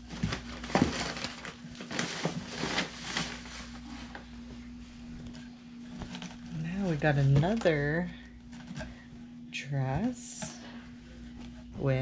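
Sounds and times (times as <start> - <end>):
clothing rustling against cardboard box: 0.0 - 9.1.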